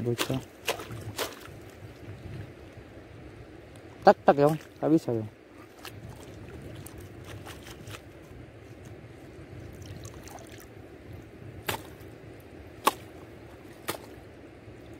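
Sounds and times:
water trickling: 0.0 - 11.3
seawater sloshing and dripping: 0.0 - 12.2.

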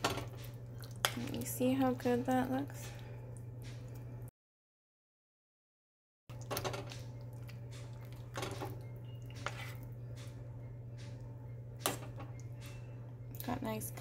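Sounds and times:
low hum: 6.3 - 14.0.

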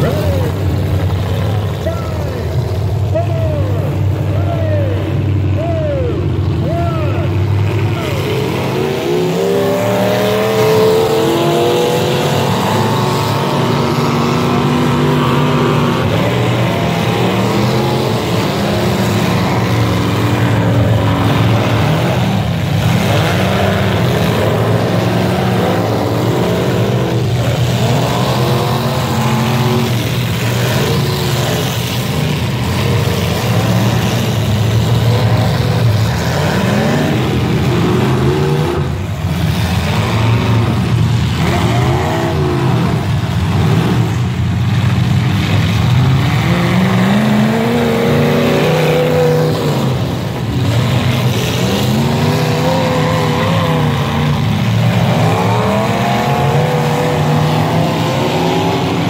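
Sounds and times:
car engines revving: 0.0 - 59.0.

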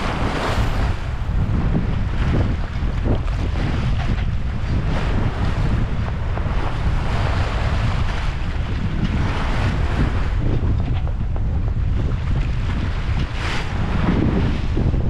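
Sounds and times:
water rushing past hull: 0.0 - 15.0
wind buffeting microphone: 0.0 - 15.0.

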